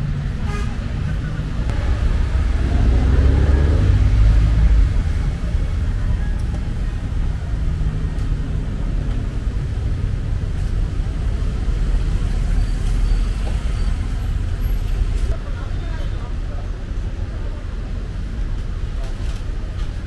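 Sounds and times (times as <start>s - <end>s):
road traffic rumble: 0.0s - 20.0s.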